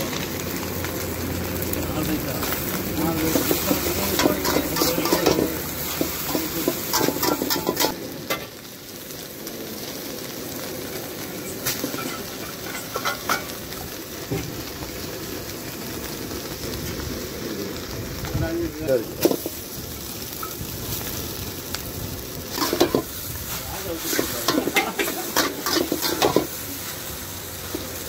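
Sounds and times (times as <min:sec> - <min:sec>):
vegetables sizzling in a wok: 0:00.0 - 0:28.0
metal spatula scraping a pan: 0:03.3 - 0:08.0, 0:11.6 - 0:13.5, 0:22.5 - 0:26.6.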